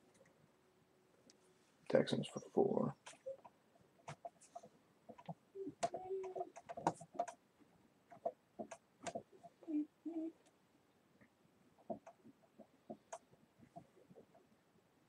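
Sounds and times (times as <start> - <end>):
small clicks and taps: 3.0 - 7.4, 8.1 - 9.3, 11.2 - 14.4.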